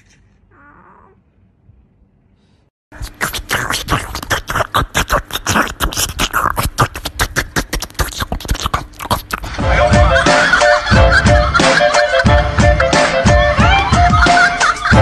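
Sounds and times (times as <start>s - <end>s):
animal crunching and chewing: 3.0s - 9.5s.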